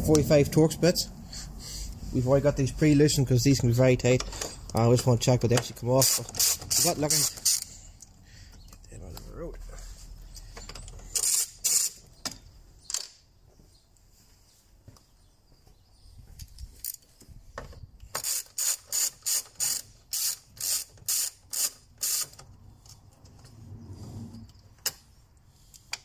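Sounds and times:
ratchet wrench clicking: 6.0s - 7.7s, 11.1s - 12.0s, 18.1s - 22.4s.

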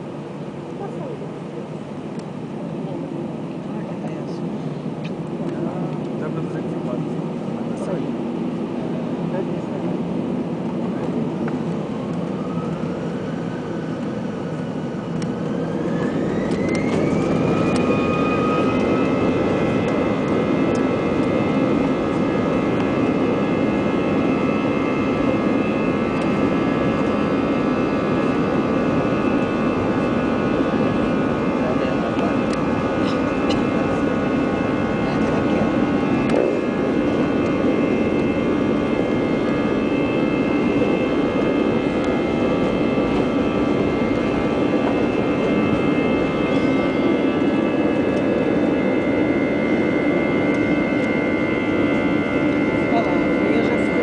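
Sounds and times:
jet engine whine: 0.0s - 54.0s.

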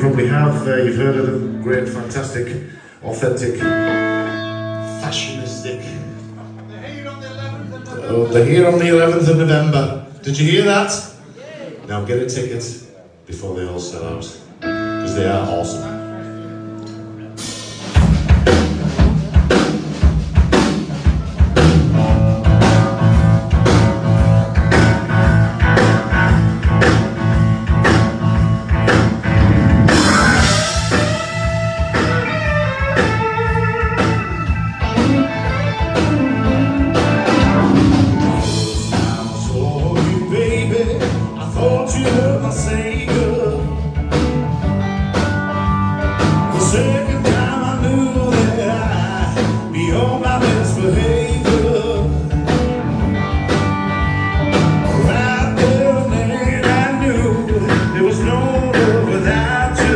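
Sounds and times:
live blues band: 0.0s - 11.9s, 13.4s - 59.9s
steady drum beat: 17.4s - 59.9s.

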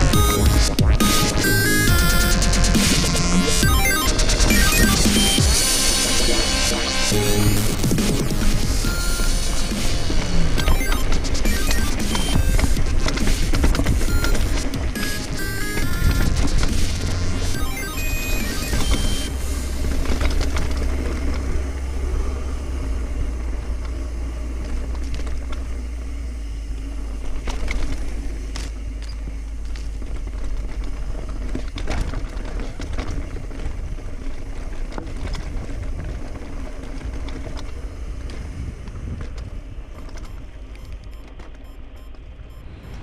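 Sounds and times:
mountain bike rattling on dirt: 12.0s - 15.0s, 19.2s - 42.1s
bike knocking over bumps: 12.1s - 15.0s
wind rumbling on microphone: 29.5s - 41.2s.

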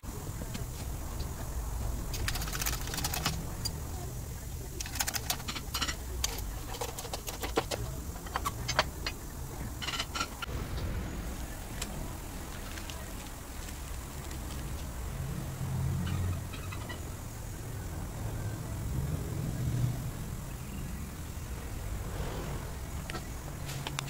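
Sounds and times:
low rumble: 0.0s - 4.8s, 10.4s - 24.0s
sharp metallic clicks: 2.1s - 3.8s, 4.8s - 9.2s.

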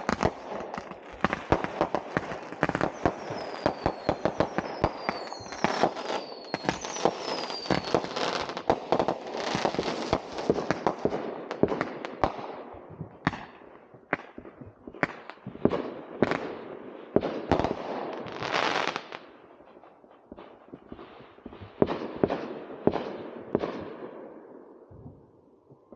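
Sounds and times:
fireworks bangs and crackles: 0.0s - 25.9s
fireworks whistles falling in pitch: 2.8s - 8.7s.

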